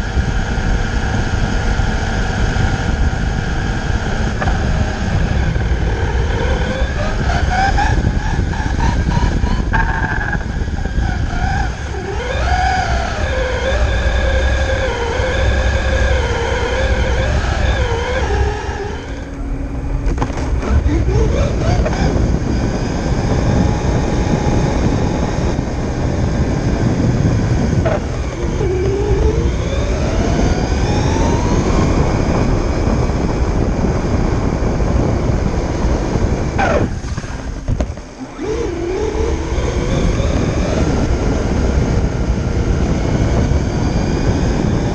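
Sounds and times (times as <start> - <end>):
toy truck electric motor whining: 10.8 - 25.5, 27.7 - 32.4, 36.6 - 44.9.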